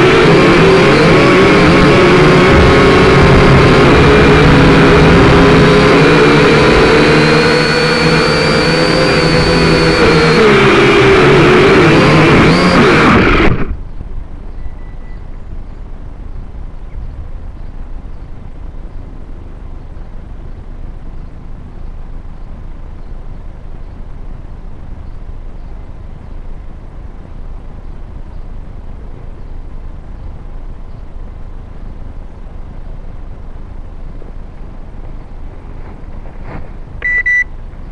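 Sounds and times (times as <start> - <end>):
wind rumble on microphone: 0.0 - 37.9
faint short beep: 14.5 - 15.3, 37.0 - 37.6.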